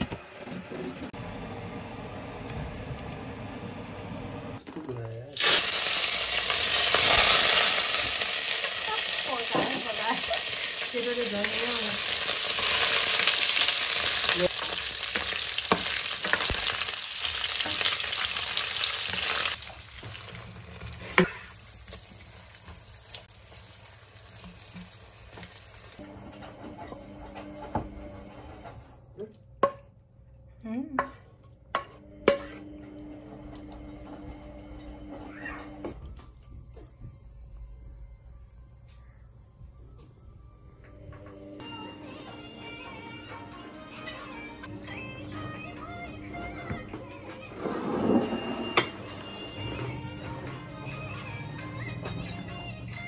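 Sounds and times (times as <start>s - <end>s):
meat sizzling in hot oil: 5.3s - 26.0s
wooden spoon stirring: 31.0s - 32.7s.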